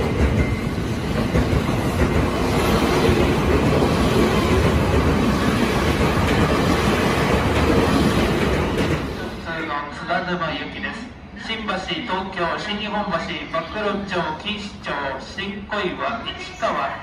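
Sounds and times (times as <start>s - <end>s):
electric train rumbling past: 0.0s - 16.6s.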